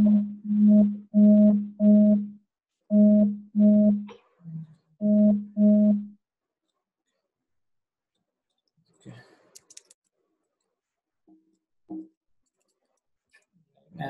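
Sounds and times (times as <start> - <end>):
low buzzing signal pulses: 0.0 - 4.1, 5.0 - 6.1.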